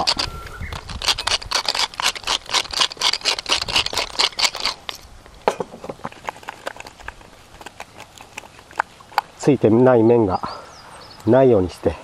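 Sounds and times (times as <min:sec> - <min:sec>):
pepper mill grinding: 0:00.0 - 0:05.1.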